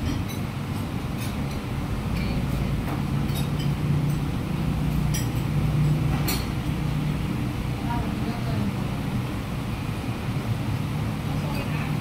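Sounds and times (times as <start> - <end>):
cutlery clinking on plates: 0.0 - 4.2, 5.0 - 6.5.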